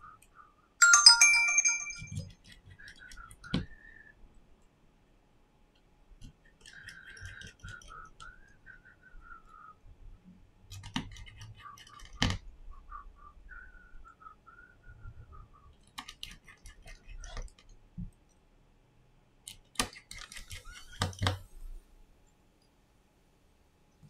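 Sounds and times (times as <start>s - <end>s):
bright multi-tone chime: 0.8s - 2.2s
faint wavering whistle tone: 7.9s - 9.8s, 12.7s - 15.7s.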